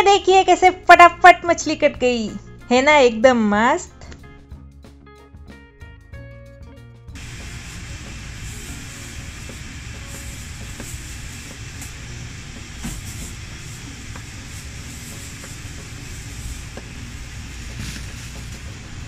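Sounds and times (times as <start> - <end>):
even hiss: 7.2 - 19.0.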